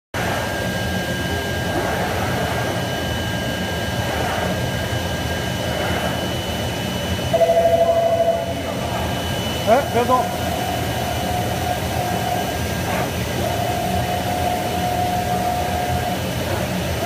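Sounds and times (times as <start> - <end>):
vacuum blower rushing: 0.2 - 7.8.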